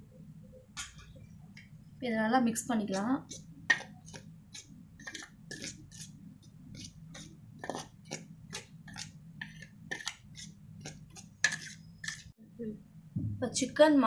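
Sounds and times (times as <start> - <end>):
spoon scraping metal plate: 2.8 - 12.3.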